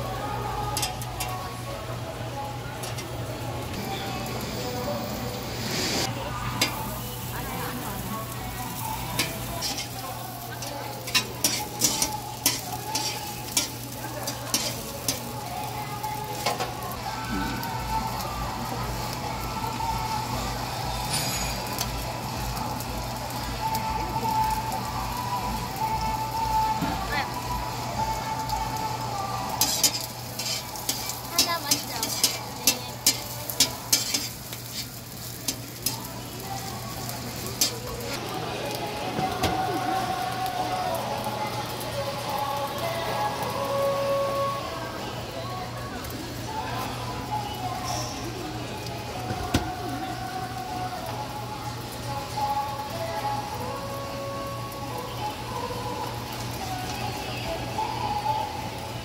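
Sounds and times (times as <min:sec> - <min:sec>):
meat sizzling on griddle: 0:00.0 - 0:59.0
metal tongs clicking and scraping: 0:00.8 - 0:01.4, 0:02.8 - 0:03.1, 0:09.2 - 0:15.3, 0:29.6 - 0:36.0.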